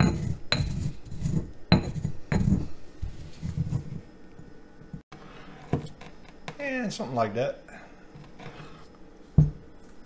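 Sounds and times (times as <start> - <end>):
pestle grinding in stone mortar: 0.0 - 4.0.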